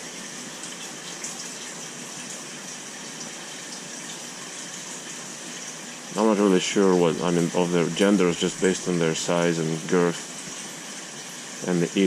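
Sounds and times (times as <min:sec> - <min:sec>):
water pouring into a tank: 0:00.0 - 0:12.0.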